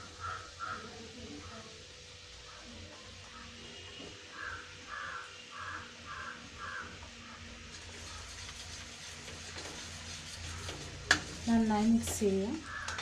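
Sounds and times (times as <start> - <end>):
crow cawing: 0.1 - 0.9, 4.3 - 7.5, 12.6 - 13.0
metal ladle scraping a pot: 7.7 - 13.0.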